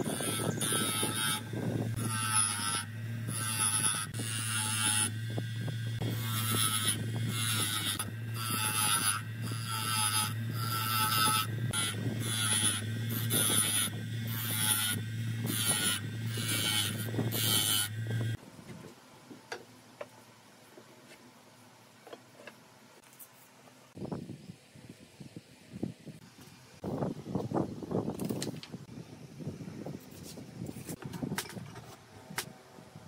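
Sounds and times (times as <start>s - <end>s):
bench grinder humming: 0.0s - 18.4s
wood grinding scrape: 0.0s - 18.4s.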